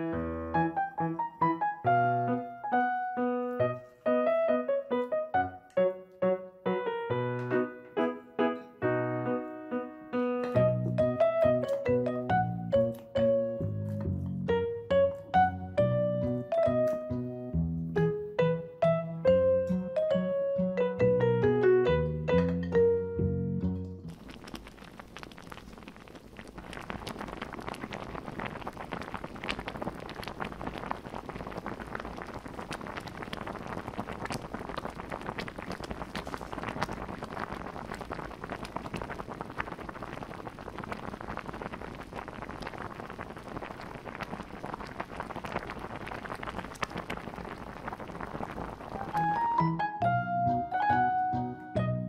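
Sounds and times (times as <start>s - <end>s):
soup boiling in pot: 24.0s - 49.8s.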